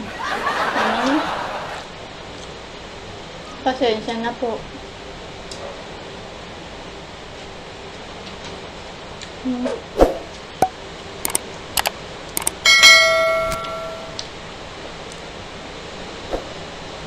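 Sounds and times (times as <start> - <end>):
quick clicks: 11.2 - 12.6
bell ding: 12.4 - 14.2.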